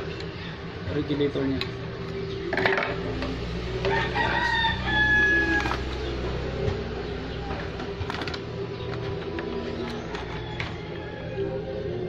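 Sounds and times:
rooster crowing: 0:03.8 - 0:06.0, 0:10.0 - 0:12.0.

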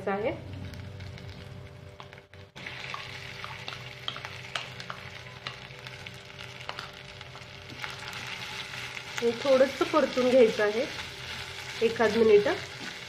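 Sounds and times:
potato frying in hot oil: 0:00.5 - 0:13.0
spoon tapping and scraping: 0:03.4 - 0:05.7.

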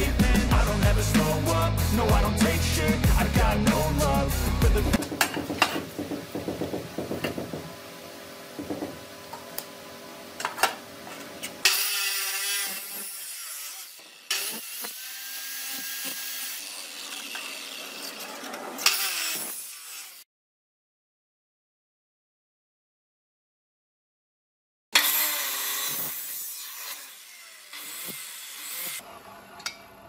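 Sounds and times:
cut-off saw grinding steel: 0:11.6 - 0:20.3, 0:25.0 - 0:29.8.

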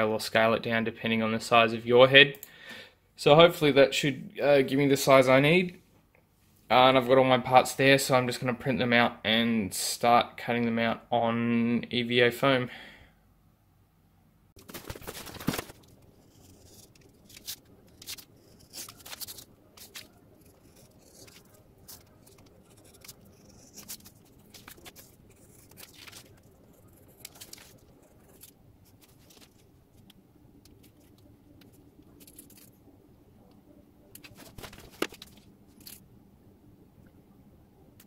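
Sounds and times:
paper rustling: 0:14.6 - 0:32.8, 0:34.2 - 0:36.0
utility knife scratching through paper: 0:16.2 - 0:29.5.

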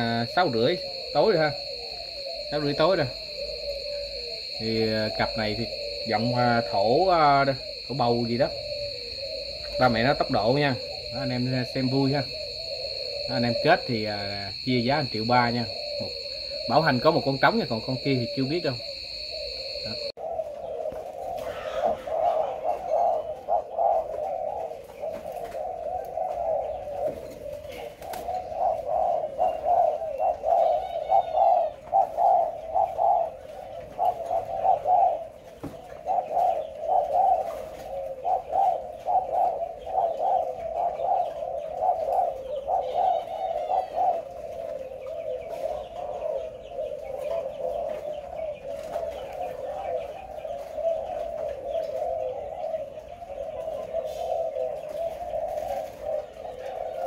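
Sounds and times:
high bird chirps: 0:00.0 - 0:20.2
doves cooing: 0:00.0 - 0:57.0.

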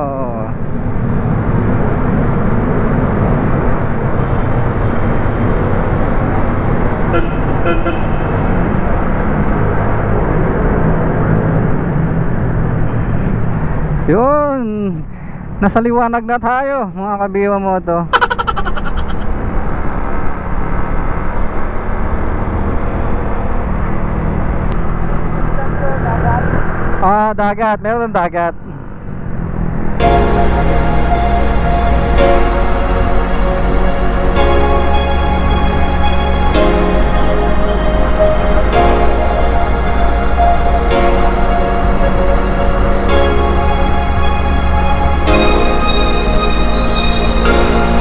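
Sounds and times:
motorcycle engine rumble in tunnel: 0:00.0 - 0:14.1
motorcycle engine and road noise: 0:00.0 - 0:15.6, 0:18.1 - 0:27.9, 0:28.5 - 0:45.3
vehicle horn toots: 0:07.1 - 0:08.4.

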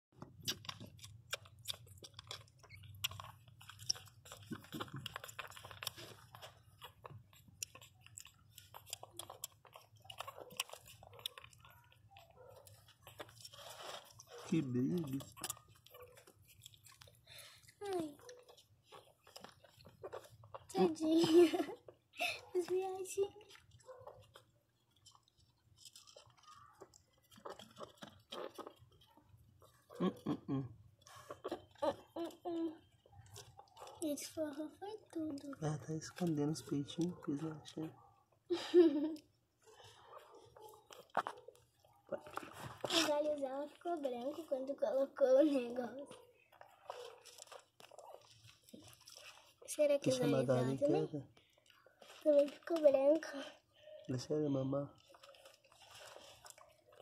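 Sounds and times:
puppies suckling: 0:00.2 - 0:57.0
dogs wet mouth smacking: 0:30.8 - 0:50.5, 0:54.9 - 0:57.0.

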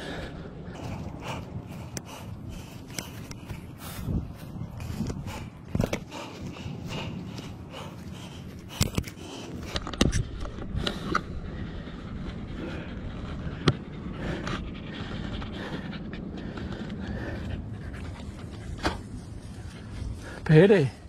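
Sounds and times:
dog panting: 0:04.9 - 0:09.7.

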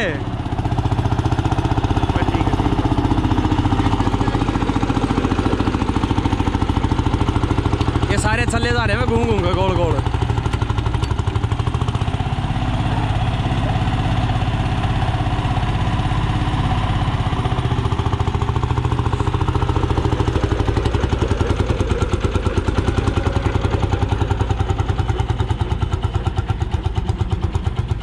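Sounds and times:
tractor engine exhaust beats: 0:00.0 - 0:28.0.

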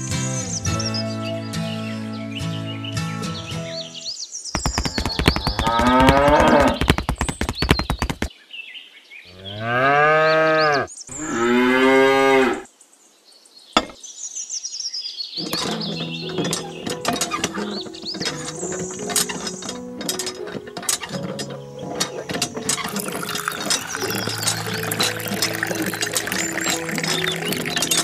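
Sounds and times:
hand pump clicking: 0:04.6 - 0:08.3, 0:15.4 - 0:28.0
cow mooing: 0:09.4 - 0:12.7.

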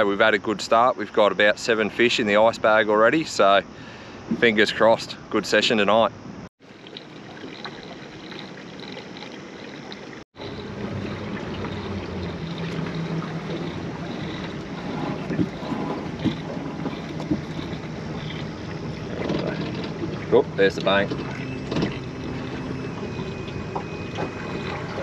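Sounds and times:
water lapping against hull: 0:06.6 - 0:25.0
wind on microphone: 0:10.4 - 0:25.0.

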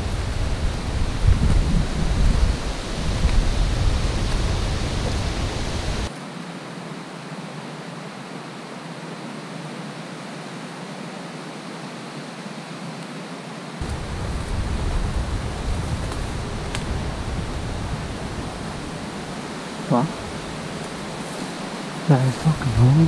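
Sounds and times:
wind buffeting microphone: 0:00.0 - 0:06.1, 0:13.8 - 0:23.0
steady outdoor hiss: 0:00.0 - 0:23.0.

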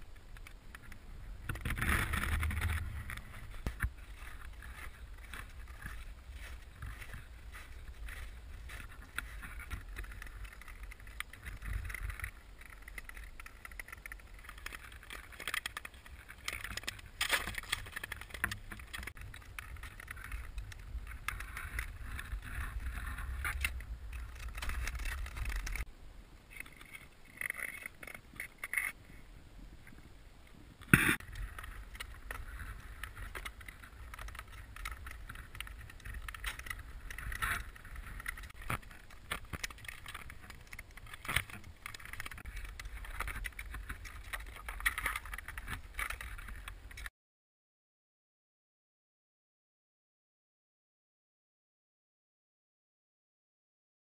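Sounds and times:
wind rumbling on microphone: 0:00.0 - 0:47.1.

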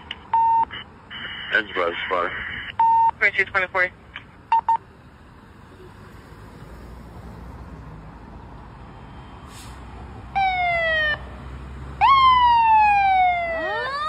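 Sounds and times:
fire engine rumble: 0:00.0 - 0:06.7, 0:07.6 - 0:14.0
short hiss: 0:09.5 - 0:09.9
siren chirp: 0:10.4 - 0:11.3, 0:12.0 - 0:14.0.

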